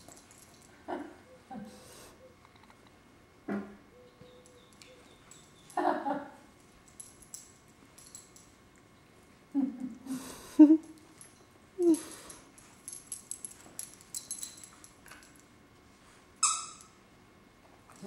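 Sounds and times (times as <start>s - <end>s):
collar tags jingling: 0.0s - 0.8s, 4.3s - 5.9s, 6.6s - 8.6s, 10.9s - 15.5s.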